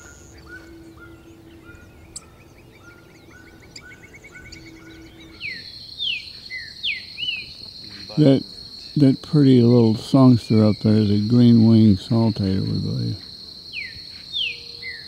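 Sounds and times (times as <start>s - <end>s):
bird singing downslurred whistles: 0.0s - 8.2s, 13.7s - 15.0s
high insect buzz: 0.0s - 15.0s.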